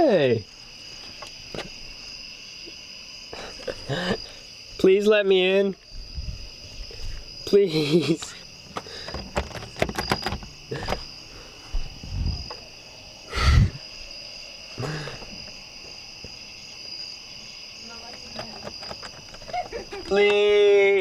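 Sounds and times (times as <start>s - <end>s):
crickets trilling: 0.0s - 21.0s
door handle clicks: 9.2s - 11.1s.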